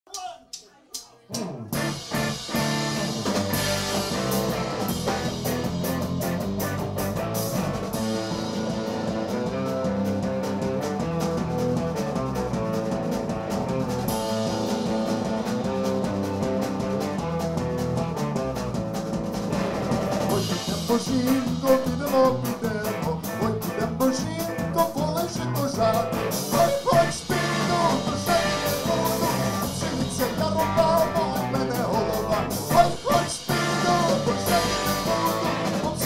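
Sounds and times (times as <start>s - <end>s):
drum kit: 0.1s - 36.0s
electric guitar: 1.3s - 36.0s.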